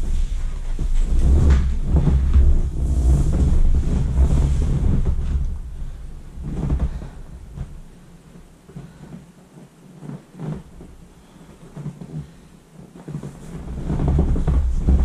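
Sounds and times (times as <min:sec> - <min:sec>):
wind noise on microphone: 0:00.0 - 0:08.6, 0:13.3 - 0:15.0.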